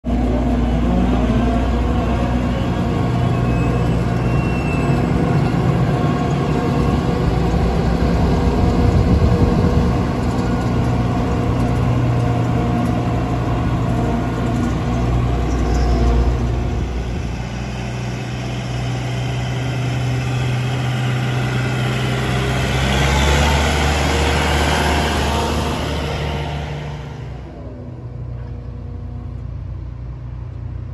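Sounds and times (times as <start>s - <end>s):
combine harvester diesel engine: 0.0s - 30.9s
tractor passing with rumble: 0.0s - 30.9s.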